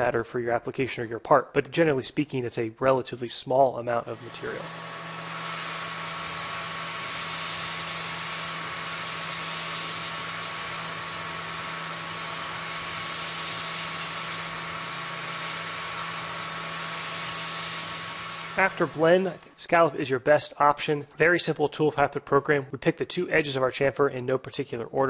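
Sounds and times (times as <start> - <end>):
high-pitched metal cutting: 4.1 - 19.5
milling machine spindle hum: 4.1 - 19.5
continuous hiss: 16.9 - 19.6.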